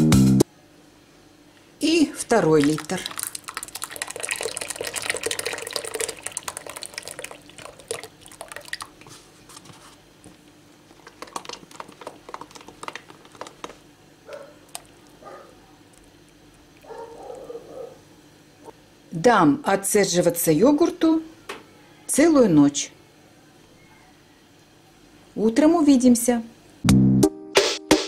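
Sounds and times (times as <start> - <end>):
yogurt pouring and splattering: 2.4 - 9.4, 10.9 - 13.7, 14.6 - 15.2.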